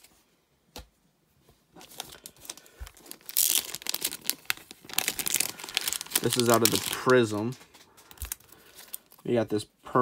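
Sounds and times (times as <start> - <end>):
plastic bag crinkling: 1.8 - 9.4.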